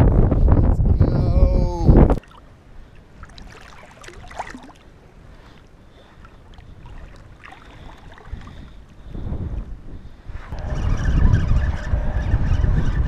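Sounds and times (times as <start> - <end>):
river water splashing: 2.2 - 8.9.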